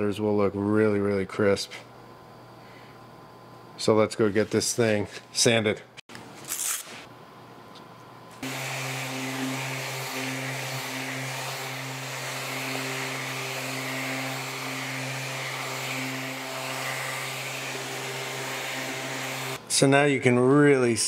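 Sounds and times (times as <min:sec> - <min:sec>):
orbital sander humming and hissing: 0:08.4 - 0:19.6.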